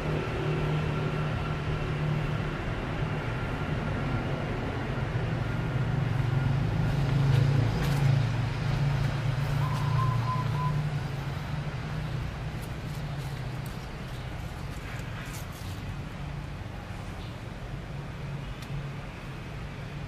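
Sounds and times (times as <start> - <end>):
vehicle engine humming: 0.0 - 20.0.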